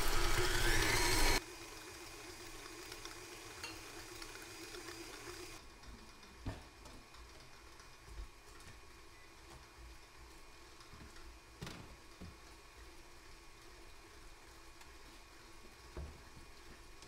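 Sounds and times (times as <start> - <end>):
kitchen appliance motor running: 0.0 - 6.3.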